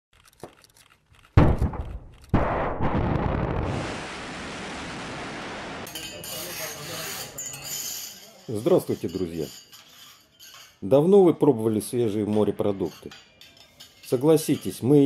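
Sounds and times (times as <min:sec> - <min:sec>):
heavy booms: 0:01.4 - 0:05.9.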